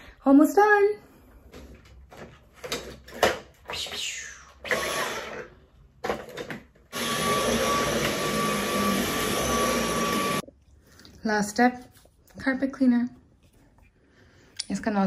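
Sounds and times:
vacuum cleaner on carpet: 7.0s - 10.4s.

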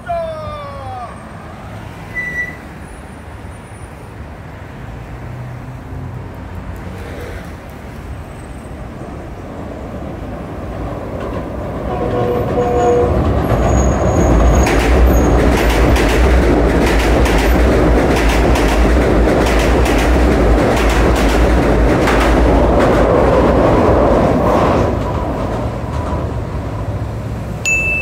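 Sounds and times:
electric train rumbling: 0.1s - 28.0s
wheels clicking over rail joints: 10.4s - 28.0s.

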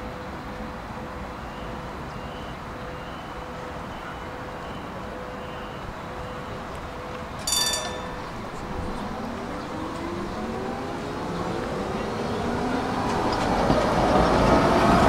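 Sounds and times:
tram electrical hum: 0.2s - 15.0s
bright ringing tram chime: 3.6s - 13.7s
traction motors whining: 6.4s - 15.0s.

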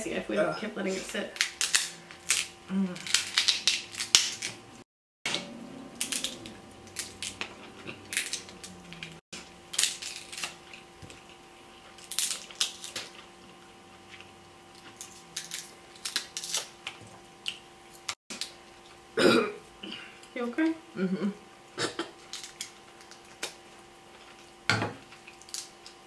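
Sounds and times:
crab shells cracking: 1.4s - 4.6s, 6.0s - 13.3s, 14.7s - 18.6s, 22.2s - 23.6s, 25.1s - 26.0s.

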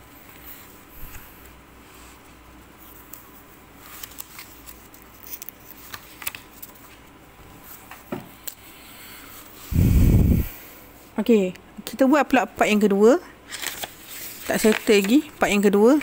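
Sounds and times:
paper rustling on a desk: 0.3s - 8.1s, 13.5s - 16.0s.

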